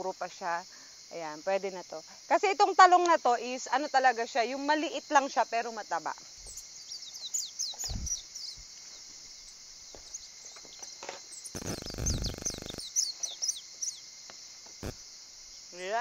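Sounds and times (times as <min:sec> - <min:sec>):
high insect drone: 0:00.0 - 0:16.0
bird chirps: 0:06.4 - 0:14.1
harsh rasping buzz: 0:10.0 - 0:13.6.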